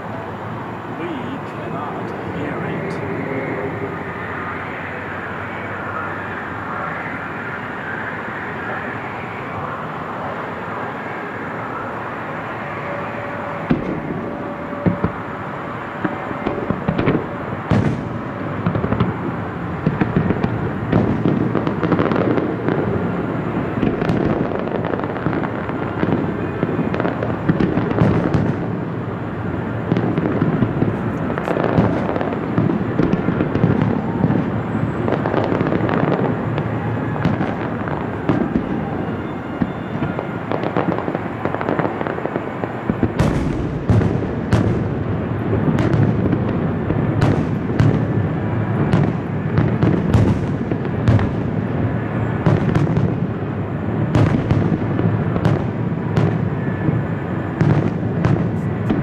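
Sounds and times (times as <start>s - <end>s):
firework booms: 12.8s - 59.0s
sharp firework cracks: 16.0s - 28.8s, 29.6s - 53.4s, 54.0s - 56.7s.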